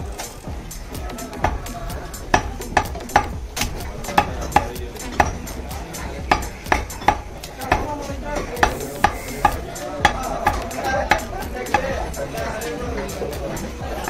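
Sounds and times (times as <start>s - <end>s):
cleaver chopping meat and bone: 1.0s - 12.1s.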